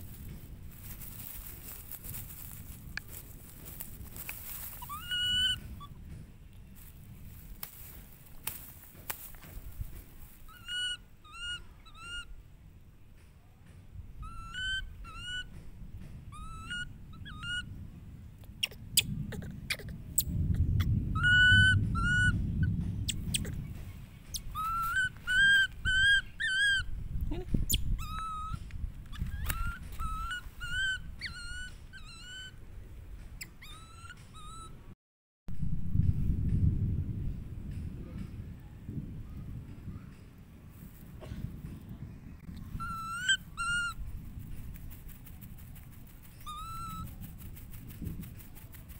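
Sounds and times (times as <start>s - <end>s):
low rustling: 0.0s - 10.5s
baby monkey high-pitched calls: 4.6s - 6.0s, 10.4s - 12.4s, 14.2s - 15.6s, 16.3s - 17.7s, 18.5s - 32.6s, 33.4s - 34.8s, 42.6s - 44.0s, 46.3s - 47.2s.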